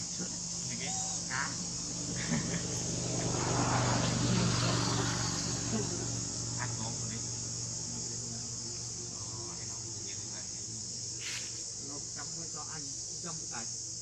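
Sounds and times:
insects droning: 0.0 - 14.0
vehicle engine passing: 0.3 - 10.6.

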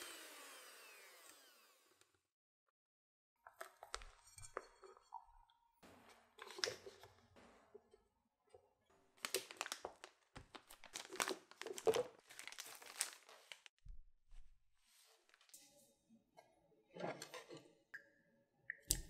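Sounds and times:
plastic piping bag crinkling: 9.1 - 13.7.

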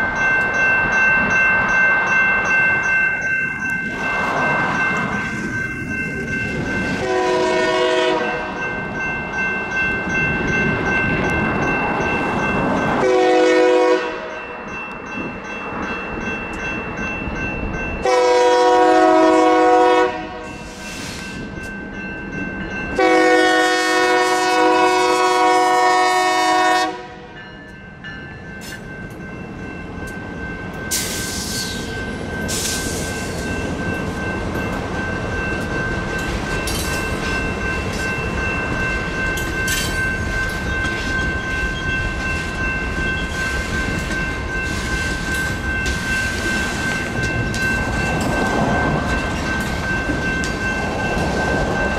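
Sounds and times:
crossing bell ringing: 0.0 - 51.9
train wheels rumbling on rails: 0.0 - 51.9
locomotive horn blasts: 7.0 - 8.6, 13.0 - 14.4, 18.0 - 20.6, 23.0 - 27.4.

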